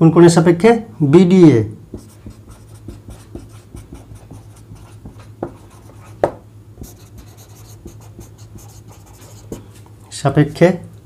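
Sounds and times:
low steady hum: 0.0 - 11.0
pen scratching on paper: 1.9 - 9.8.

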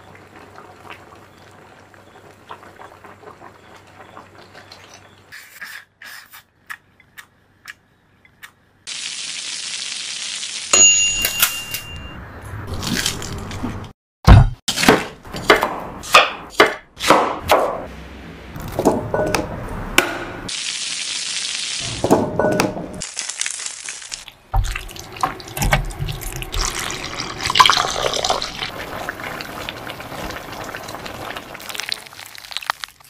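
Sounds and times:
fruit cooking in a pan: 0.0 - 5.3, 23.0 - 33.0
tap running: 24.6 - 28.4.

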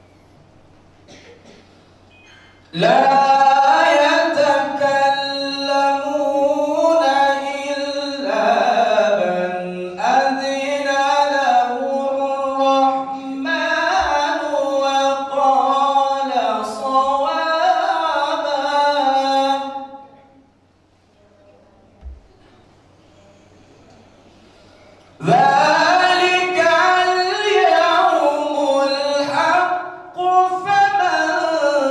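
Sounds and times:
man reciting melodically into microphone: 2.7 - 20.2, 25.2 - 31.9.

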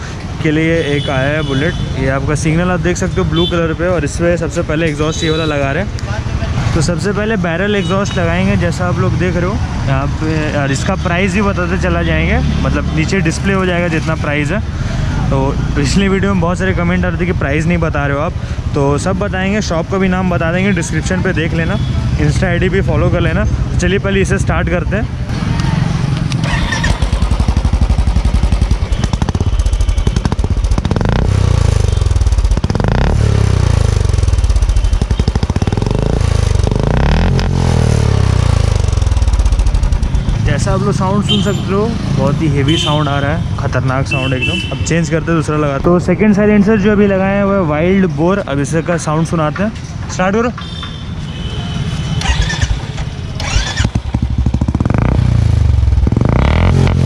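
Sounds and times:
motorcycle engine thumping idle: 26.8 - 37.1, 38.3 - 40.3, 53.4 - 55.2.

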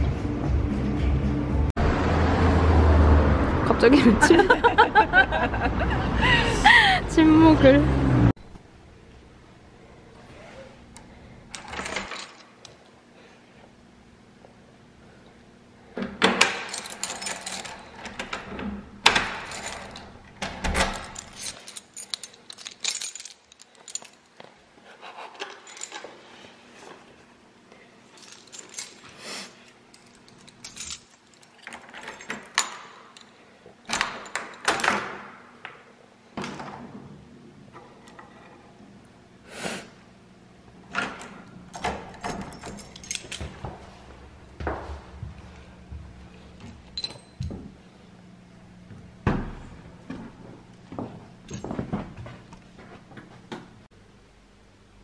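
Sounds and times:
keys jangling: 16.6 - 18.4, 19.2 - 24.5, 25.4 - 26.2, 28.1 - 35.0, 41.8 - 43.6, 46.6 - 47.5
key working in lock: 16.6 - 24.3, 41.2 - 43.4.

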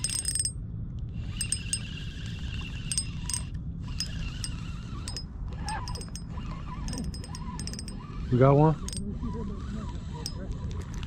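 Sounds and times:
fishing gear clicks and clinks: 0.0 - 0.6, 1.4 - 1.8, 2.9 - 6.3, 6.9 - 8.0.

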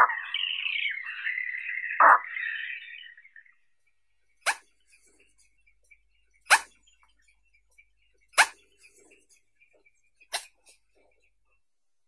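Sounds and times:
spoonbill calling: 0.0 - 3.6.

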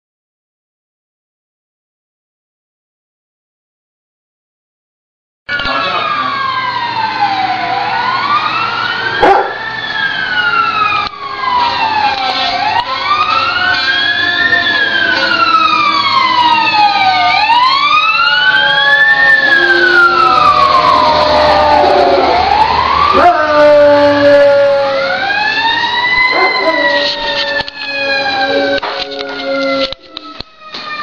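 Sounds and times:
emergency siren wailing: 5.5 - 31.0.

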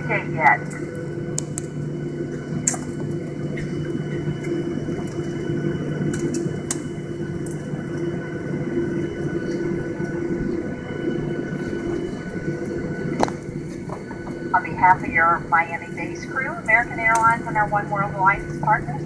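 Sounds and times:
airplane cabin hum: 0.0 - 19.0.

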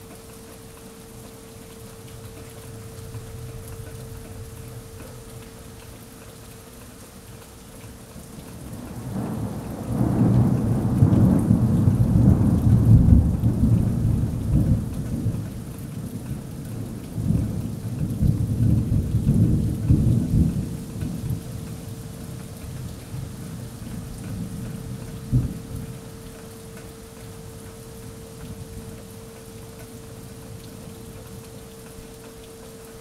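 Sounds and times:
steady rain: 0.0 - 33.0
thunder rumbling: 8.9 - 15.3.

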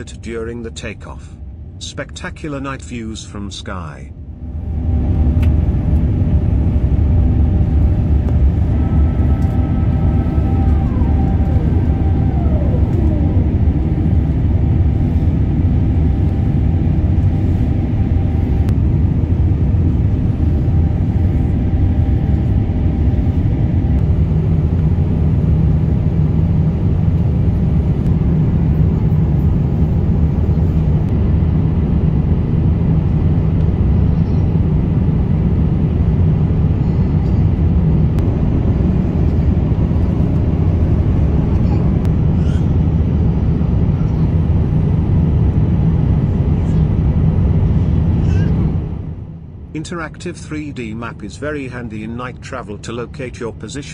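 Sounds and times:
jet engine cabin rumble: 0.0 - 53.9
whining tones gliding down: 4.5 - 18.7.

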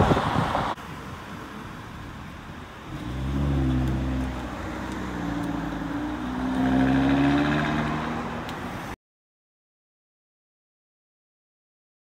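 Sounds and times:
car engine accelerating: 2.9 - 8.7.

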